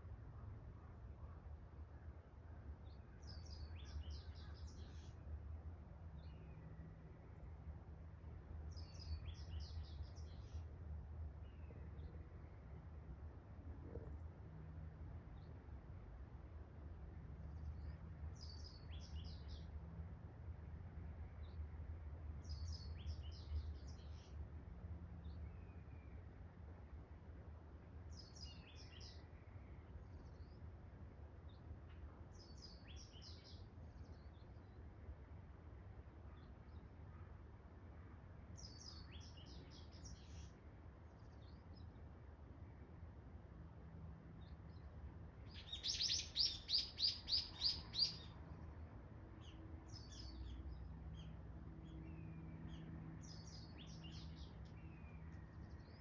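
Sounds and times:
songbirds chirping: 0:00.0 - 0:56.0
songbird twittering: 0:45.5 - 0:48.3.

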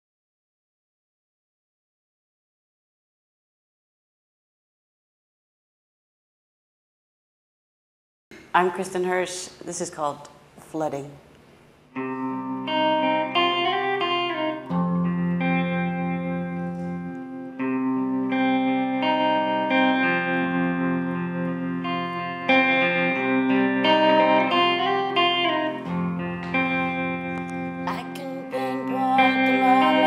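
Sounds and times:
electric guitar playing: 0:11.9 - 0:30.0.

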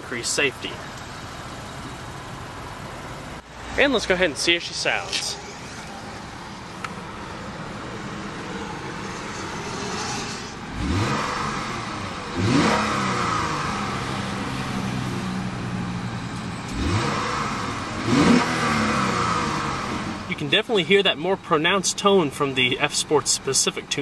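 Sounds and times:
car engine revving: 0:00.9 - 0:20.5.

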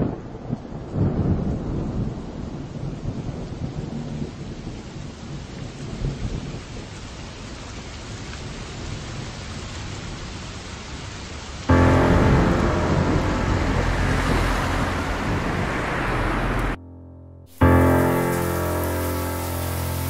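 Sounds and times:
rolling thunder: 0:00.0 - 0:07.1, 0:11.7 - 0:16.8
rain falling: 0:00.0 - 0:16.8, 0:17.5 - 0:20.0.

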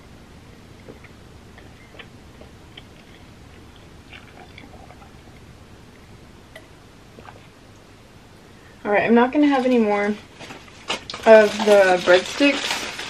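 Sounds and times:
person sipping and swallowing: 0:00.7 - 0:07.6
wet mouth clicks: 0:00.8 - 0:05.5.

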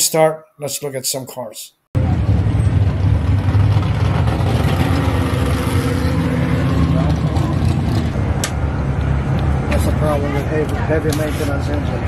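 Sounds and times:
race car engine running: 0:02.0 - 0:10.0.

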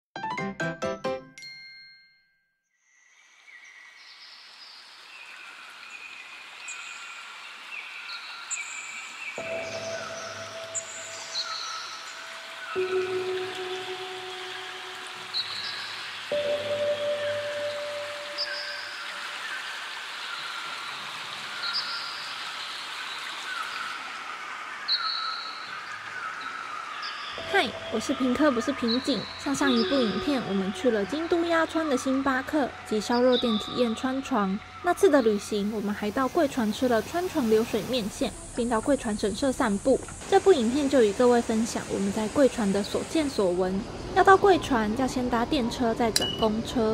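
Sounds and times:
chime-like ringing tones: 0:01.3 - 0:02.5, 0:09.4 - 0:11.5, 0:12.8 - 0:19.2
waterfall and stream rushing: 0:04.2 - 0:44.2
high-pitched tones: 0:12.8 - 0:15.7, 0:16.3 - 0:19.1, 0:27.4 - 0:35.6.

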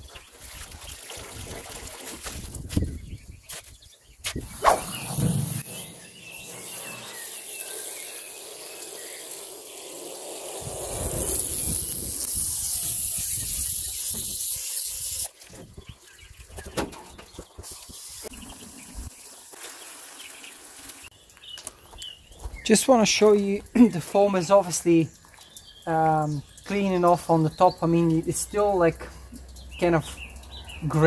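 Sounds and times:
hose nozzle spraying water: 0:04.4 - 0:15.3
water trickling: 0:22.7 - 0:31.0.

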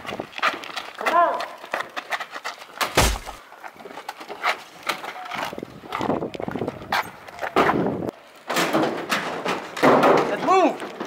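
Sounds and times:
knocks and thuds: 0:02.8 - 0:03.4.

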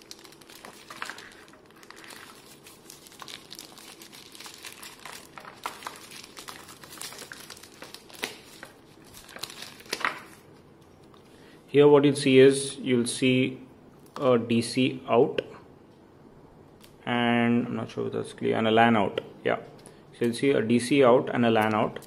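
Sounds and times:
plastic bag crinkling: 0:00.0 - 0:11.2.

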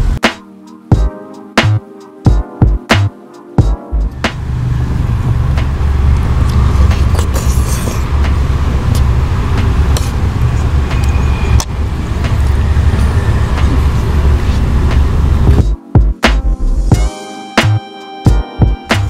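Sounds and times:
car engine idling: 0:04.0 - 0:15.6.

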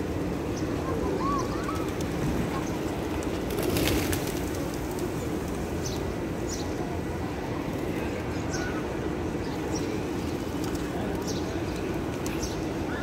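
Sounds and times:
crowd noise: 0:00.0 - 0:13.0
pigeon wings flapping: 0:01.6 - 0:05.6.

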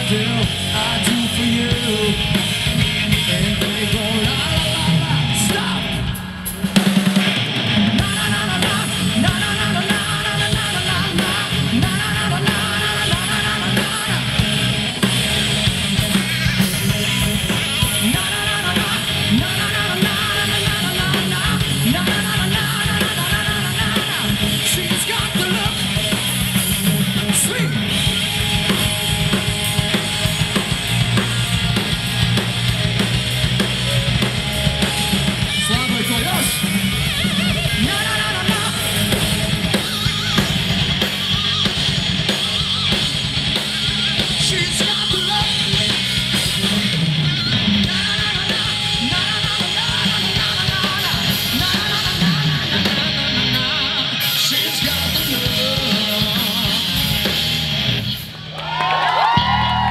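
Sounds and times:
live rock band playing: 0:00.0 - 0:59.9.

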